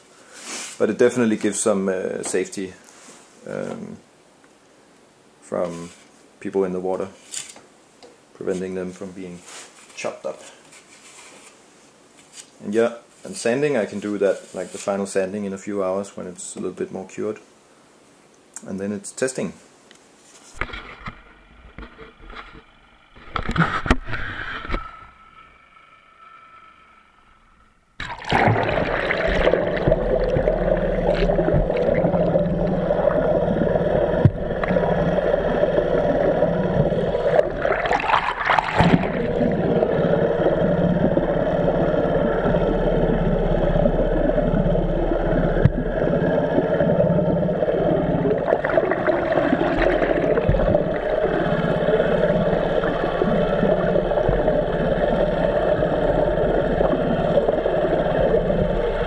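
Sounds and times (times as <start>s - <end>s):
underwater motor drone: 21.0s - 59.0s
churning bubbling water: 28.0s - 59.0s.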